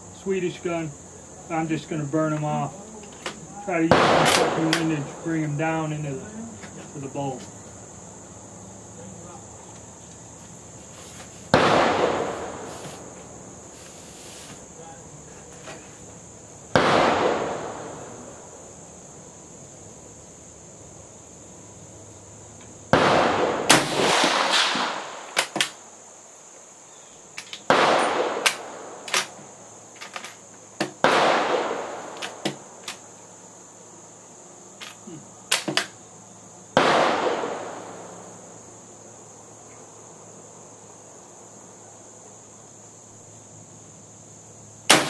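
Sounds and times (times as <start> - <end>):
rifle shots echoing: 3.7 - 5.4, 11.5 - 12.7, 16.7 - 18.4, 22.9 - 25.6, 27.6 - 29.4, 31.0 - 32.7, 36.8 - 38.2.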